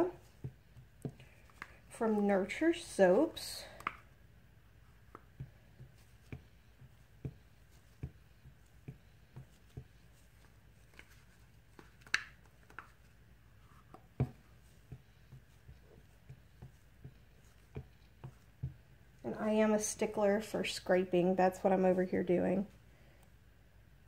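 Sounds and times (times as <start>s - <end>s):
spatula tapping plastic container: 5.1s - 9.9s.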